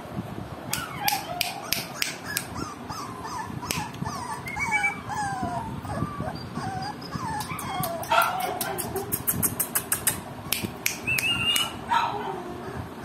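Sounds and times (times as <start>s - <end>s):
puppies whimpering: 0.7s - 9.2s, 11.1s - 13.0s
sharp clicks: 7.4s - 11.7s.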